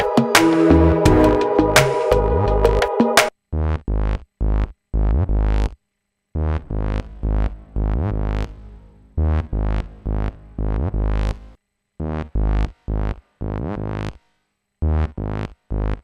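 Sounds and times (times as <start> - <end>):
synthesizer punchy bass notes: 0.0 - 3.3.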